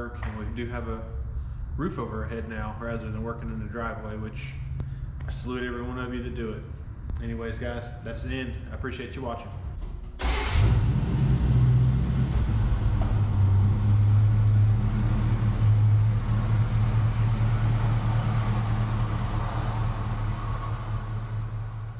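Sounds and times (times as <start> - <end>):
truck engine running at low speed: 10.7 - 21.9.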